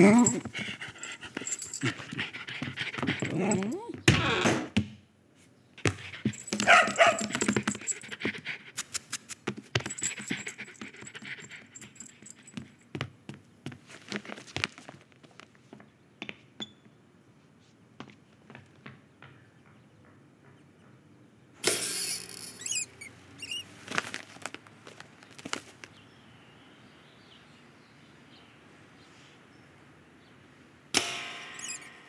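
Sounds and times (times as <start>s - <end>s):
dog whining: 0.0s - 4.5s, 6.2s - 8.5s, 22.2s - 23.7s, 31.6s - 31.9s.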